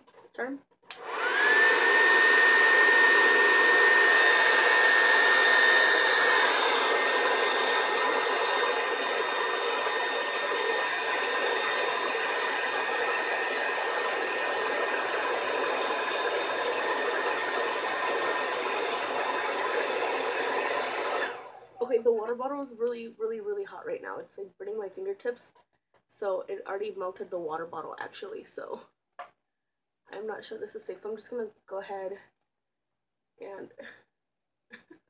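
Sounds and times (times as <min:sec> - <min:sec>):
hair dryer whining: 0:00.9 - 0:22.3.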